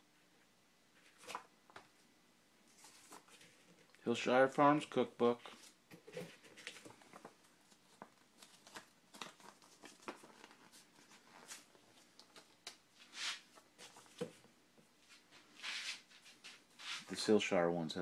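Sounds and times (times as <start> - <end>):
paper booklets rustling: 1.0 - 2.0, 2.7 - 3.9, 5.4 - 14.4.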